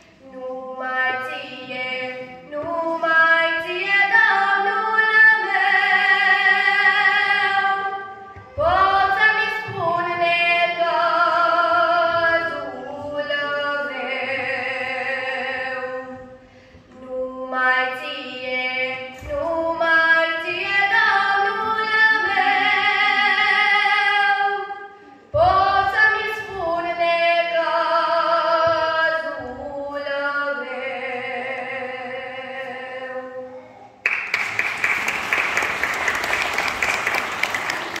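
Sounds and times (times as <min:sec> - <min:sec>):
woman singing a hymn: 0:00.0 - 0:33.5
applause: 0:34.0 - 0:38.0.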